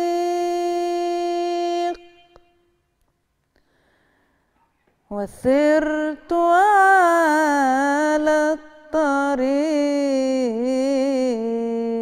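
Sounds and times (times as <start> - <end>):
woman singing unaccompanied: 0.0 - 2.7, 5.1 - 12.0.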